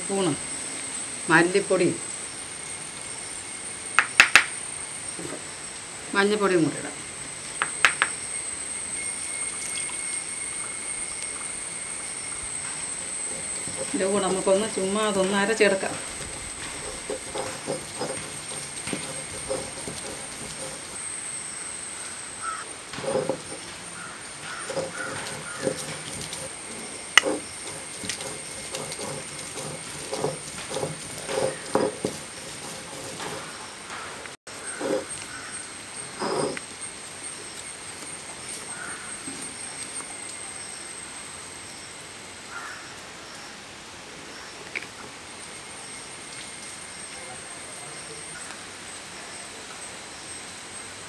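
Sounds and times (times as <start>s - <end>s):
steady hiss with high tone: 0.0s - 51.0s
sharp stone knock: 4.0s - 4.5s, 7.6s - 8.2s
stone rolling on stone: 4.0s - 4.6s, 7.6s - 8.2s, 12.3s - 21.0s, 22.9s - 34.0s, 36.1s - 36.7s.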